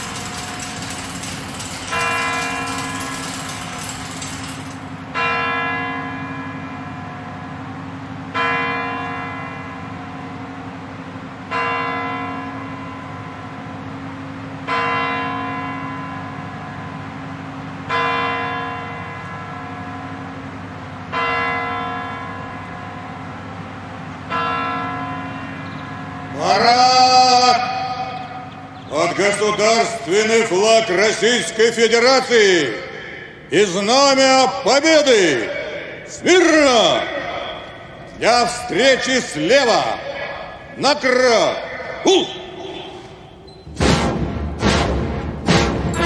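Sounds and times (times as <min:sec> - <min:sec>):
clock bell striking: 0:00.0 - 0:07.4, 0:24.3 - 0:26.9.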